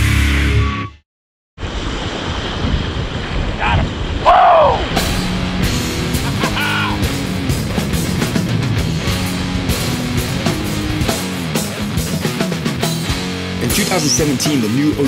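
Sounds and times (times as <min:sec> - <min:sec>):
rock music: 0:00.0 - 0:01.0, 0:05.0 - 0:15.0
wind buffeting microphone: 0:01.6 - 0:11.0
surf: 0:01.6 - 0:15.0.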